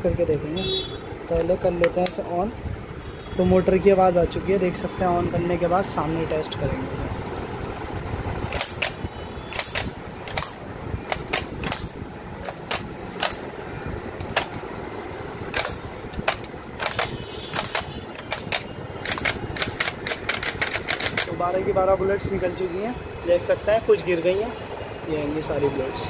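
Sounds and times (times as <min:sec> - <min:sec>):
flywheel motor whirring: 0:08.4 - 0:24.0
foam dart blaster clicks: 0:08.5 - 0:13.4, 0:15.5 - 0:21.3.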